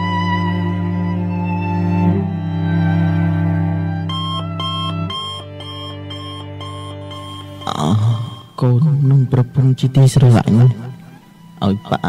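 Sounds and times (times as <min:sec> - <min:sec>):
low background music: 0:00.0 - 0:12.0
rapid electronic beeping: 0:04.1 - 0:08.7.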